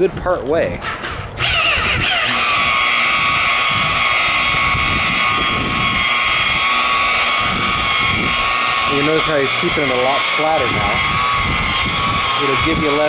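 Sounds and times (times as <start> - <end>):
rotary buffer whining: 0.0 - 13.0.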